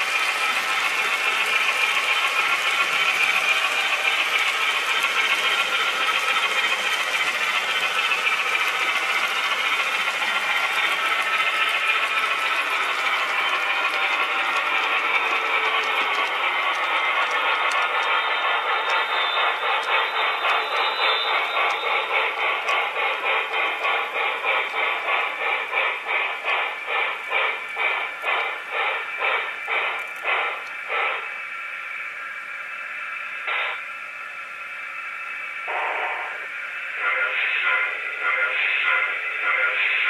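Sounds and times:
model locomotive steam chuffs: 0.0s - 40.0s.

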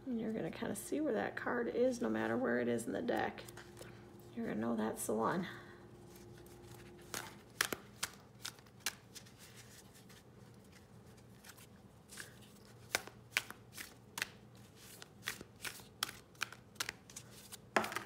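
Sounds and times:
cards being shuffled by hand: 6.0s - 18.0s.

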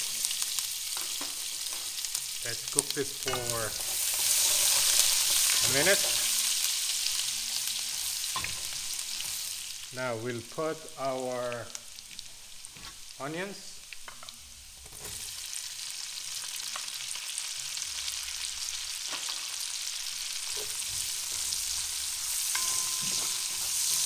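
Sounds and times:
onions sizzling in hot oil: 0.0s - 24.0s
wooden spoon stirring in pot: 20.4s - 24.0s.

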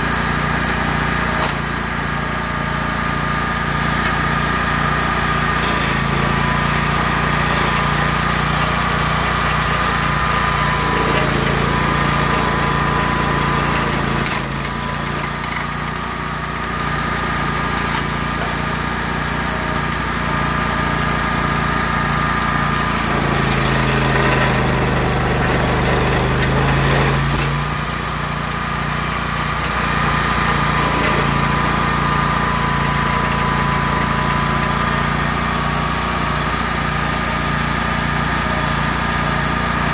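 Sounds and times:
high cutter wheel whine: 0.0s - 39.9s
stump grinder engine running: 0.0s - 39.9s.

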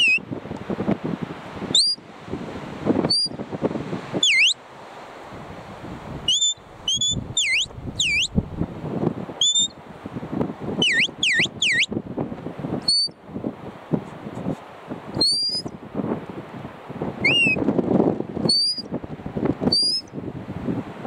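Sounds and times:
whistled commands: 1.8s - 2.0s, 3.1s - 3.4s, 4.2s - 4.6s, 6.3s - 8.4s, 9.4s - 9.8s, 10.8s - 11.9s, 12.9s - 13.2s, 15.2s - 15.7s, 17.2s - 17.6s, 18.5s - 18.9s, 19.7s - 20.1s.

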